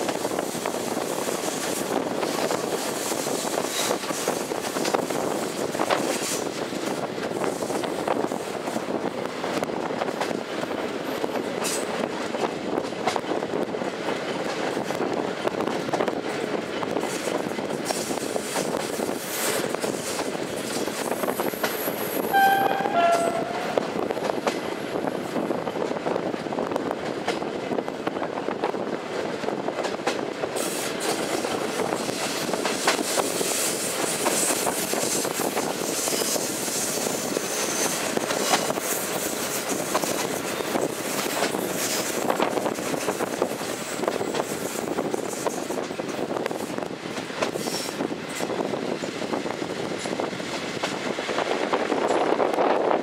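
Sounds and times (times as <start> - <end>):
faint high squeal: 22.3 - 24.0.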